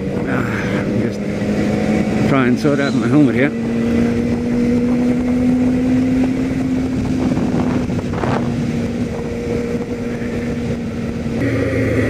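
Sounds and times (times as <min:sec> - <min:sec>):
motorcycle engine cruising: 0:00.0 - 0:12.0
wind rushing: 0:03.5 - 0:12.0.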